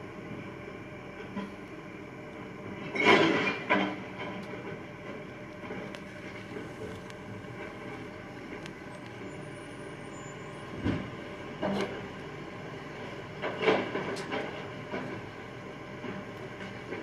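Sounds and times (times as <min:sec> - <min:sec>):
garbage truck engine running: 0:00.0 - 0:17.0.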